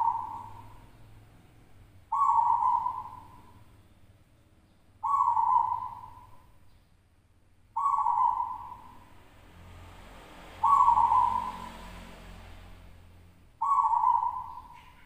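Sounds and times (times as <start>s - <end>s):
dove cooing: 0.0s - 0.8s, 2.1s - 3.6s, 5.0s - 6.4s, 7.8s - 9.0s, 10.6s - 11.9s, 13.6s - 15.0s.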